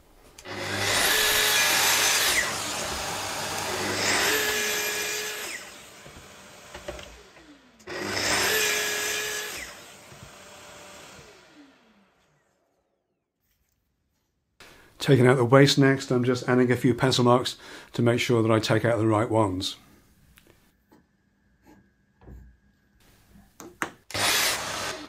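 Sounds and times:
track saw motor whining: 0.4s - 12.4s, 24.1s - 25.0s.

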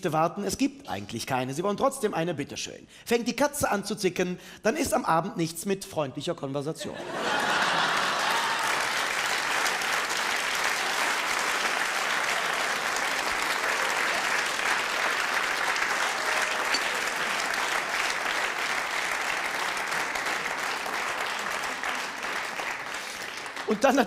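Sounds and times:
audience laughter and cheering: 6.9s - 24.0s
audience applauding: 7.1s - 24.0s.

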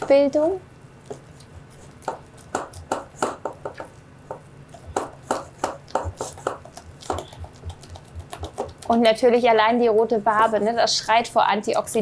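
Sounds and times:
spatula slapping dough in bowl: 1.1s - 9.3s.

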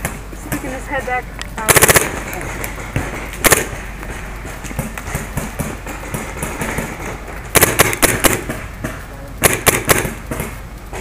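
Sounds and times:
paintball marker shots: 3.4s - 3.8s, 7.6s - 8.6s, 9.4s - 10.6s.

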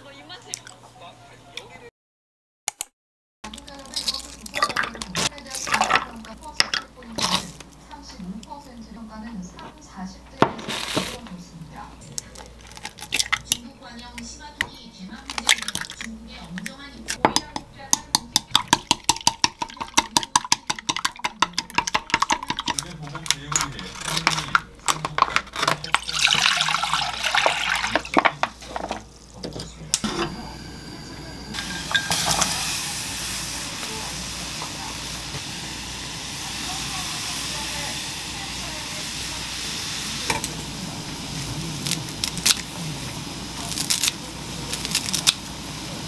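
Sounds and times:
broth pouring into saucepan: 25.8s - 29.4s, 30.2s - 46.0s.

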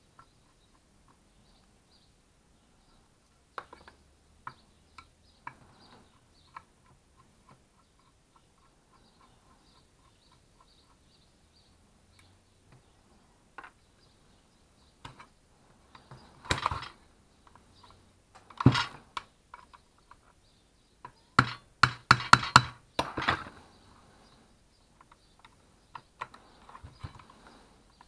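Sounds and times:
sharp metallic knocks: 21.4s - 23.4s.

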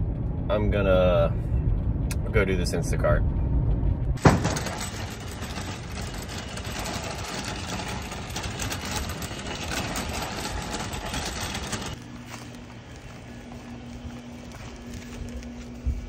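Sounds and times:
wire basket rattling: 4.2s - 12.0s
cart wheels rolling on asphalt: 4.2s - 16.0s.

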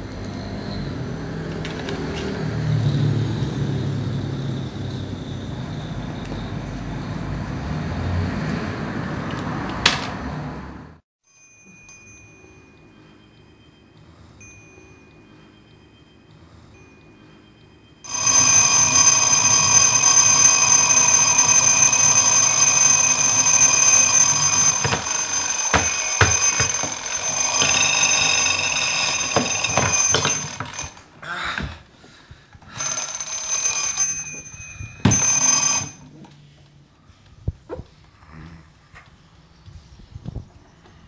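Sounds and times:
alarm clock ringing: 11.3s - 31.1s, 32.7s - 36.1s.

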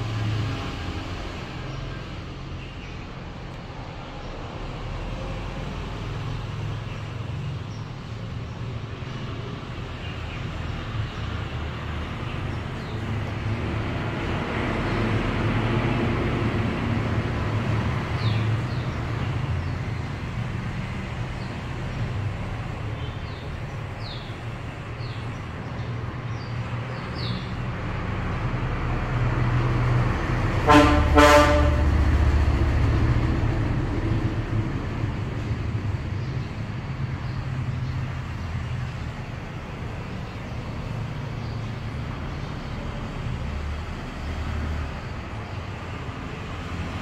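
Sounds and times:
road traffic rumble: 0.0s - 47.0s
vehicle horn honking: 30.6s - 32.0s.

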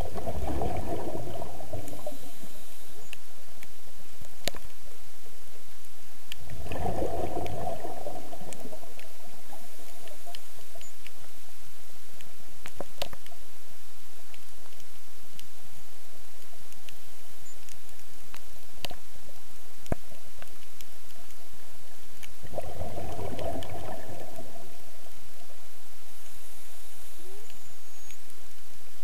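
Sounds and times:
diver's exhaled bubbles underwater: 0.0s - 2.3s, 6.5s - 10.5s, 22.4s - 24.8s
steady underwater hiss: 0.0s - 29.0s.

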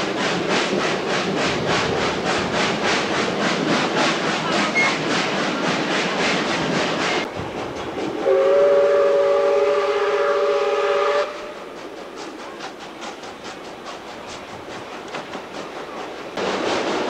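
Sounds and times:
train running beat: 0.0s - 17.0s
steam whistle chord: 8.2s - 11.7s.

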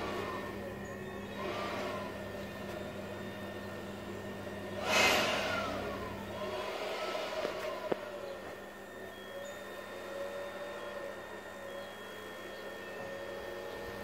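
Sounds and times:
steady electrical hum: 0.0s - 14.0s
loud electrical hissing surge: 4.8s - 6.1s.

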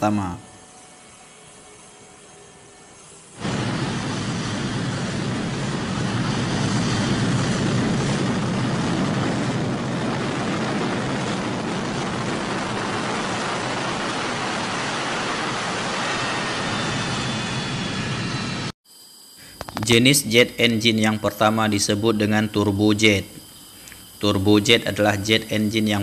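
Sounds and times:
faint high whine: 0.0s - 26.0s
jet engine rushing: 3.3s - 18.7s.

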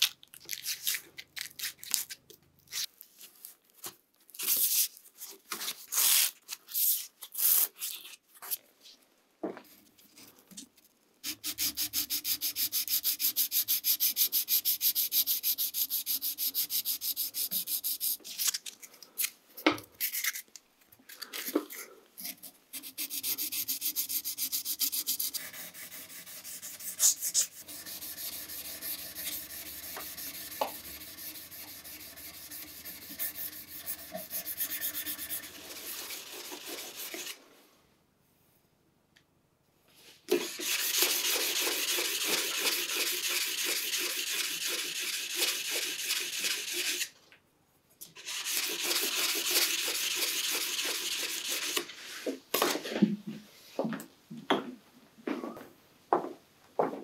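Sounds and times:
sandpaper scratching on steel: 11.2s - 18.2s, 22.2s - 37.4s, 40.5s - 47.1s, 48.2s - 51.8s.

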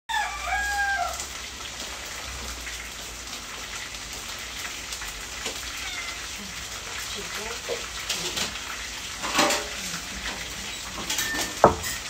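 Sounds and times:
rain on a metal roof: 0.1s - 12.0s
cat meowing: 5.6s - 6.7s.

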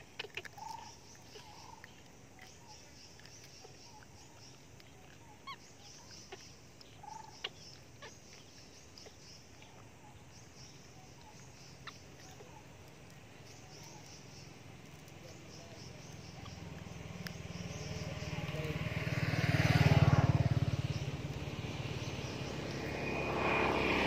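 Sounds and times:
animal chirps: 0.0s - 24.0s
lower squeaks: 20.6s - 24.0s.

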